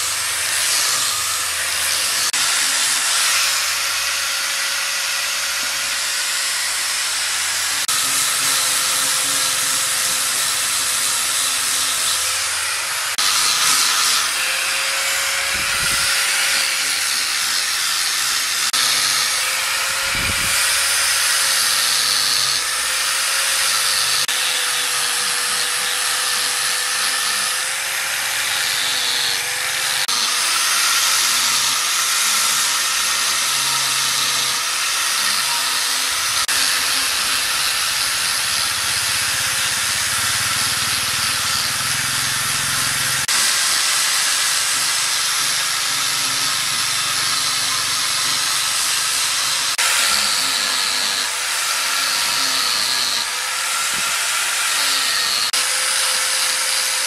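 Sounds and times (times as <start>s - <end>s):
angle grinder sanding wood: 0.0s - 57.0s.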